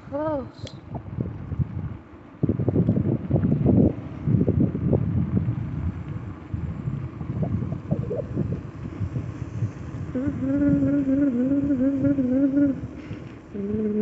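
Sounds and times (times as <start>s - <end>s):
wind buffeting microphone: 0.7s - 14.0s
bicycle tyre rumble on pavement: 0.9s - 14.0s
wavering humming tone: 4.2s - 14.0s.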